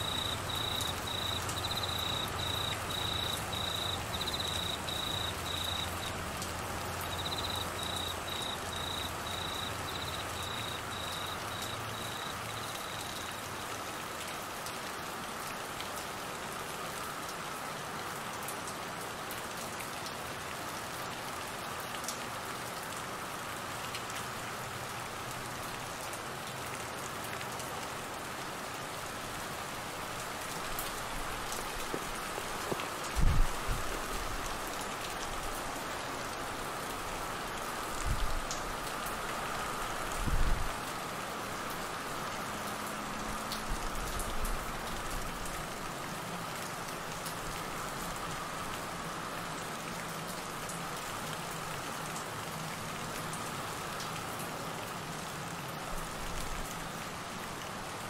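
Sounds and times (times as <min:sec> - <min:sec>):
cricket chirping: 0:00.0 - 0:06.2, 0:06.8 - 0:13.5
heavy rain on trees: 0:00.0 - 0:58.0.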